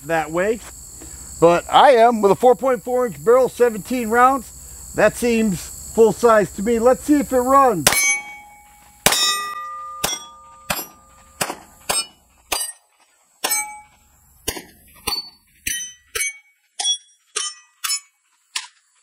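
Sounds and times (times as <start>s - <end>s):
pistol shots: 7.8s - 8.4s, 9.0s - 12.1s
steel plate target ringing: 7.8s - 12.8s, 13.4s - 18.1s.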